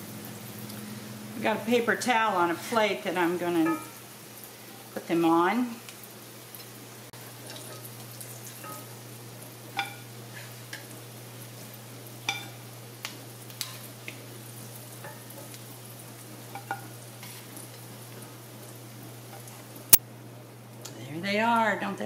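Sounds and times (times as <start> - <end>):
mushroom pieces sizzling in oil: 0.0 - 19.9
metal spatula clinking on pan: 3.6 - 4.0, 9.8 - 10.0.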